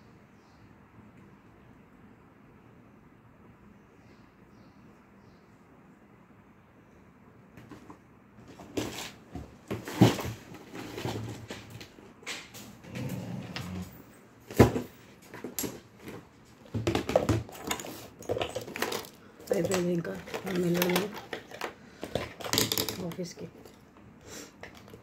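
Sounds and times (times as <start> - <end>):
cosmetics clicking and knocking: 15.3 - 23.8
makeup pouch rustling: 17.5 - 23.8.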